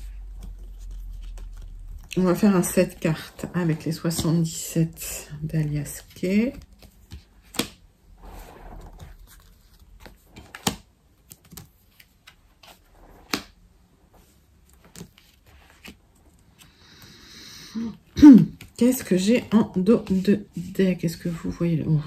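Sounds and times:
cards sliding rustle: 14.2 - 17.0.

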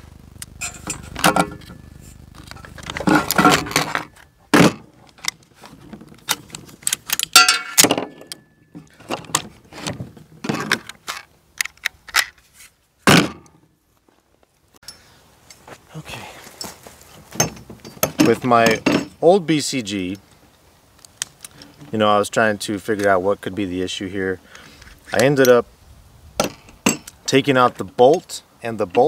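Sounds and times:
rifle metal clicks and clacks: 6.2 - 8.4.

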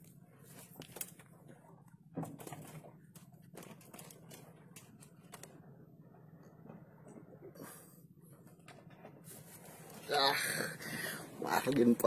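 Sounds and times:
faint clicks and knocks: 0.0 - 7.6
low steady hum: 0.0 - 12.0.

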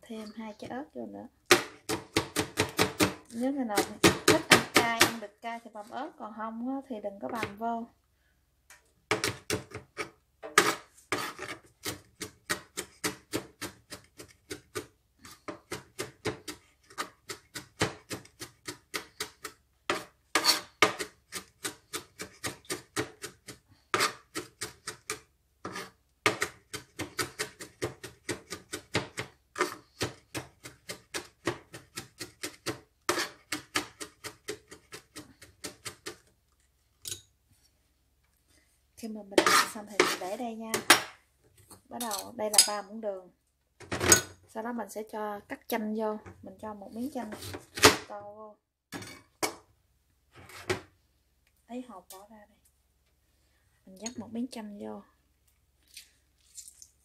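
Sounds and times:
knife chopping on cutting board: 1.5 - 5.2, 15.5 - 36.2.

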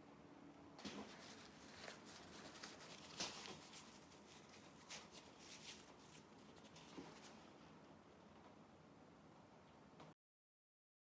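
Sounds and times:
paper towel rubbing: 0.8 - 7.6.

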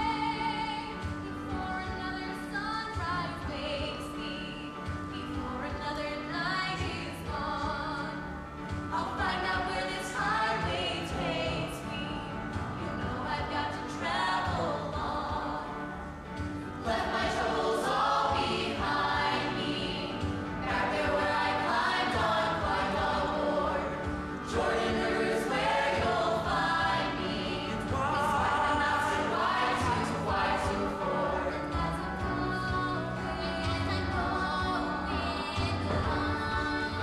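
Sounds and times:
choir singing: 9.0 - 15.9, 16.8 - 37.0.

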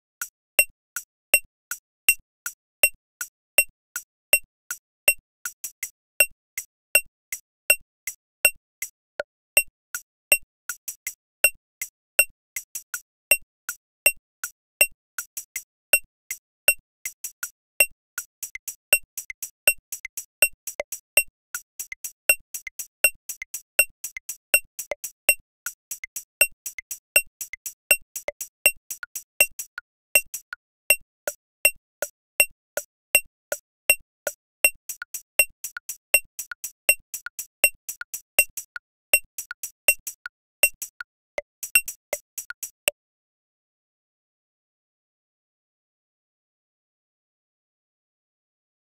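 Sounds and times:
metronome clicking: 16.3 - 42.8.

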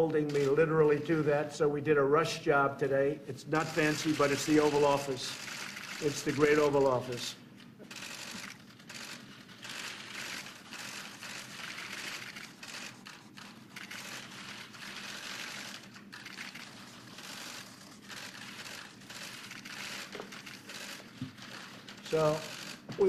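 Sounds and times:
camera shutters clicking: 7.8 - 23.0.

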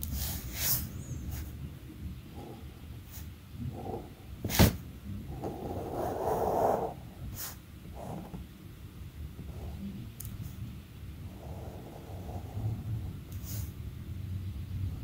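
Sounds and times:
pen drawing on paper: 5.3 - 7.0, 11.3 - 12.7.

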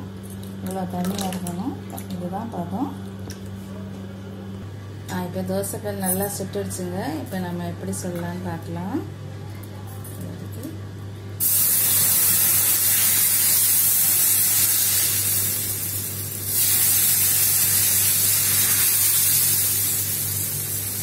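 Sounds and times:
batter sizzling on hot pan: 11.4 - 21.0.

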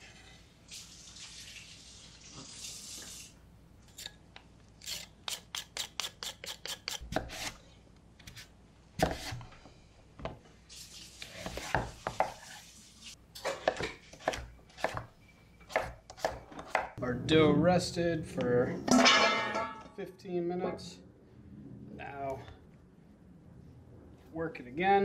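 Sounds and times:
knife chopping on wooden board: 9.0 - 9.4, 11.3 - 12.4, 13.6 - 15.1, 15.7 - 17.0.

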